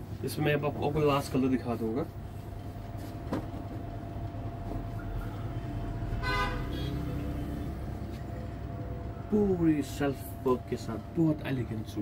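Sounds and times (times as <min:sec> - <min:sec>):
traffic rumble: 0:00.0 - 0:12.0
vehicle horn toot: 0:06.1 - 0:07.2.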